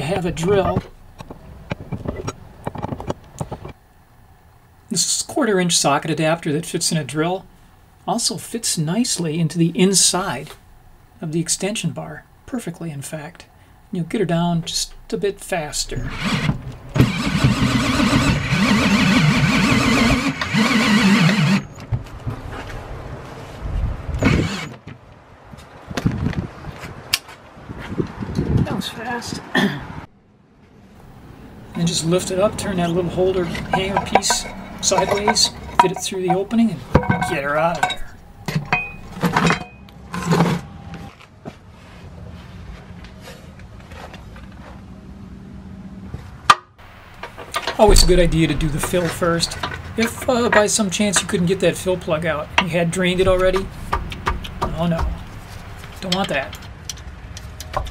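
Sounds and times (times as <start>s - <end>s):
cordless drill spinning: 16.1s - 21.7s, 24.2s - 24.8s
scraping and rattling of metal cable: 32.7s - 39.6s.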